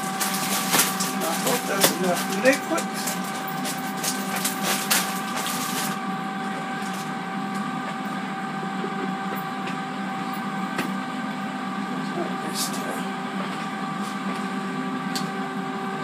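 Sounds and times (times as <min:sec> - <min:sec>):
plastic bag crinkling: 0:00.0 - 0:06.0
air fryer whirring hum: 0:00.0 - 0:16.0.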